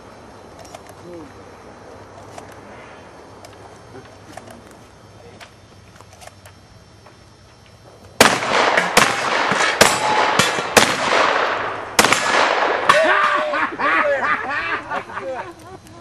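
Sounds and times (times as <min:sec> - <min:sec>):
shotgun shots echoing: 0:08.2 - 0:13.5.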